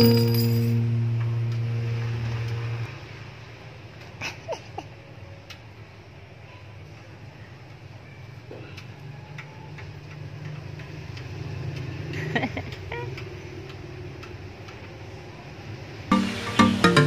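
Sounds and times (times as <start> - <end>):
low steady hum: 0.0 - 3.5.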